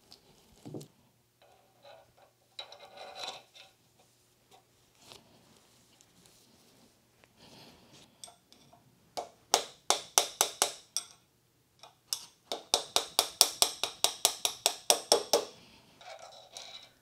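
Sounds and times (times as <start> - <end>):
hammer tapping metal: 9.2 - 11.2, 11.8 - 15.6.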